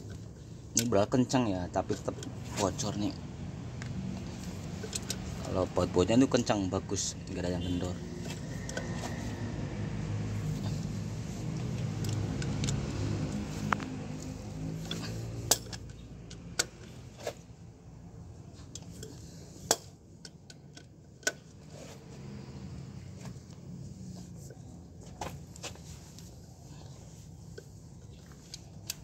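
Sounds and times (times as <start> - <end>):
wrench clinking on metal bolts: 14.8 - 17.0.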